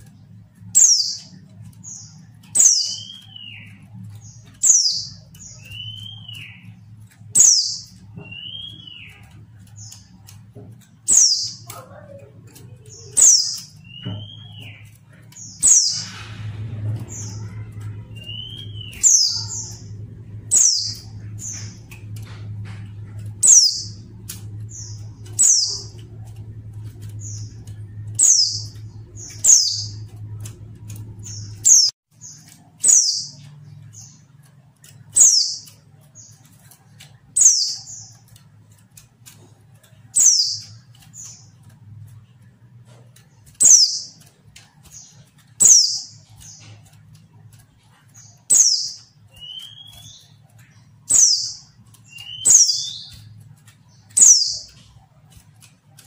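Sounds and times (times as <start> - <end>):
bird calling: 0.0 - 34.1, 48.0 - 55.0
low steady hum: 0.0 - 56.0.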